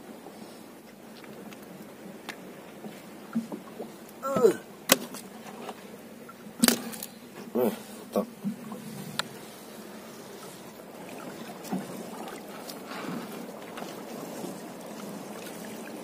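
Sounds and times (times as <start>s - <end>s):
low water wash: 0.0s - 16.0s
short falling voice sounds: 4.2s - 4.6s
net and fish knocking on hull: 6.6s - 7.0s.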